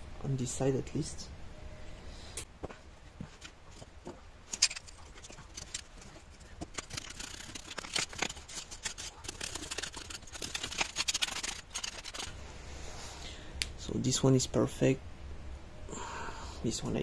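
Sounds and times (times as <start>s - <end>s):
screwdriver scraping metal and grit: 4.5s - 12.3s.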